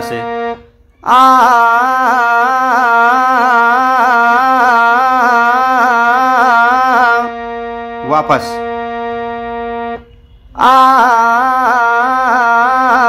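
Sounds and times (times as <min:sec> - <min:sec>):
harmonium drone: 0:00.0 - 0:13.0
man singing fast two-note pattern: 0:00.0 - 0:13.0.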